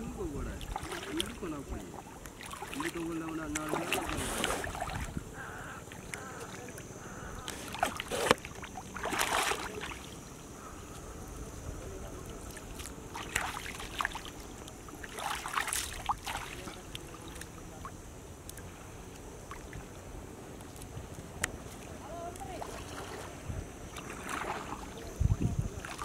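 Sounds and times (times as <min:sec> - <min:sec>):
water splashing and sloshing: 0:00.0 - 0:26.0.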